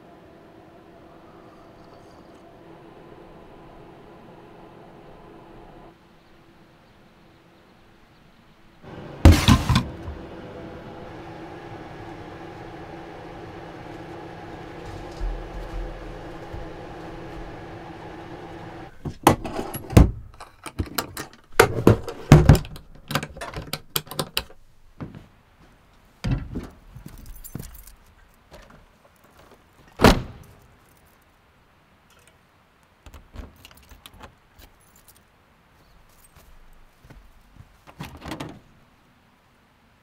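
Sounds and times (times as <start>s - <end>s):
steady hum: 0.0s - 8.0s, 8.7s - 19.0s
knocks and clunks: 8.9s - 10.4s, 13.6s - 25.3s
door thump: 9.2s - 10.2s.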